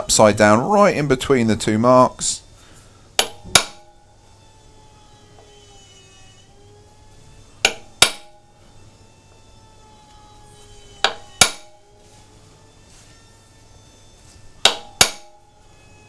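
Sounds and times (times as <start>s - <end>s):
hammer tapping metal punch: 3.2s - 4.0s, 7.6s - 8.5s, 11.0s - 11.8s, 14.6s - 15.5s.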